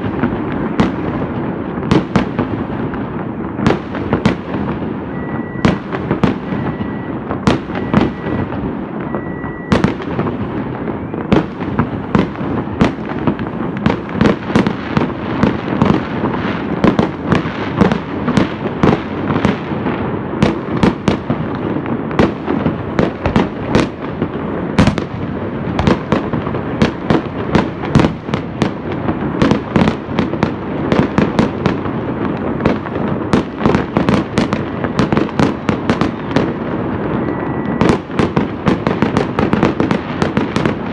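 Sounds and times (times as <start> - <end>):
fireworks crackling and banging: 0.0 - 40.9
high beep: 5.1 - 5.8, 6.6 - 9.8, 37.2 - 37.9.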